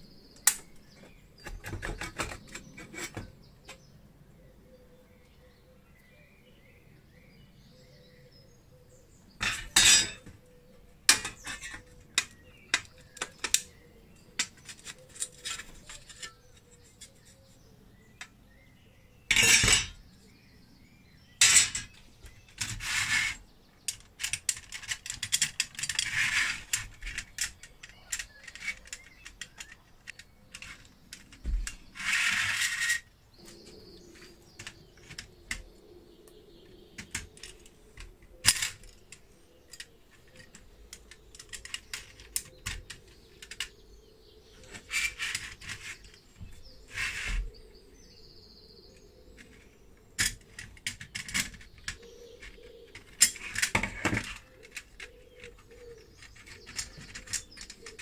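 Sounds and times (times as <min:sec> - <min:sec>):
metal scraping: 0:30.5 - 0:35.3.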